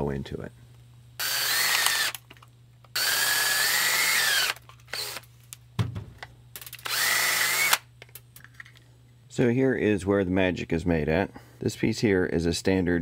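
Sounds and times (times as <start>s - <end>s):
cordless drill whining: 1.2s - 2.2s, 2.9s - 5.2s, 6.8s - 7.8s.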